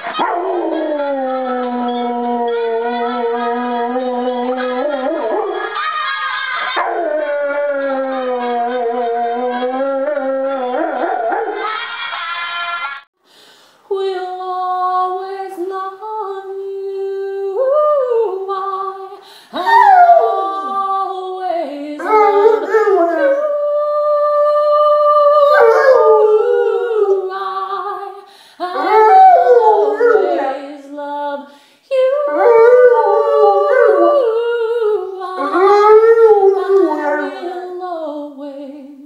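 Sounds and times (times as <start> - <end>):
dog howling: 19.6 - 21.0, 22.0 - 23.6, 25.2 - 27.3, 28.7 - 30.8, 32.1 - 37.7.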